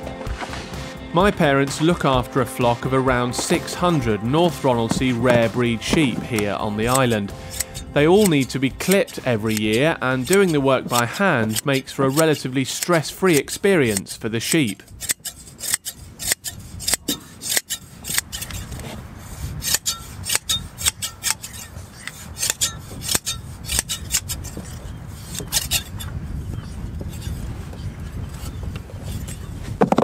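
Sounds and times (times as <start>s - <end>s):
shears snipping wool: 2.6s - 26.0s.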